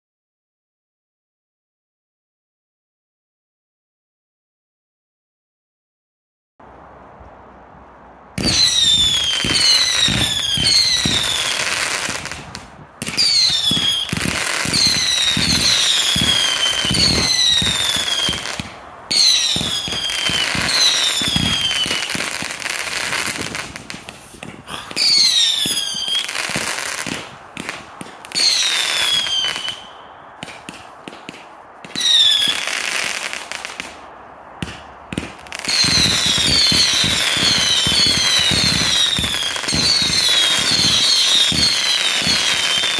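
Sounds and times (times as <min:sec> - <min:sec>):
firework crackle: 0:08.2 - 0:42.9
falling firework whistles: 0:08.4 - 0:42.9.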